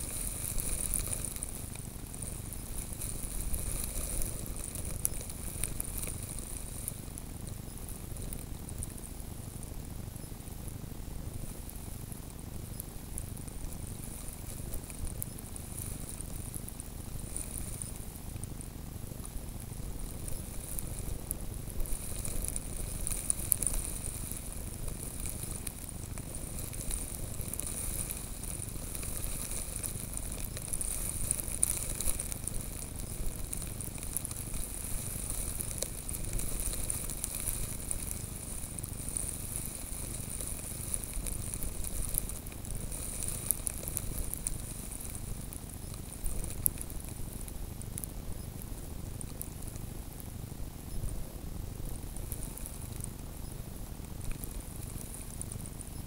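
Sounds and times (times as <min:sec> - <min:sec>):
snow grains ticking on camera: 0:00.0 - 0:56.0.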